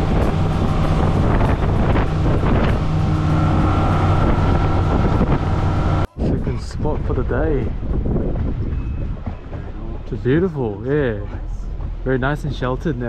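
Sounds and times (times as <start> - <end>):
high whine: 0.0 - 8.0
wind noise on microphone: 0.0 - 12.1
motorboat engine running: 0.0 - 13.0.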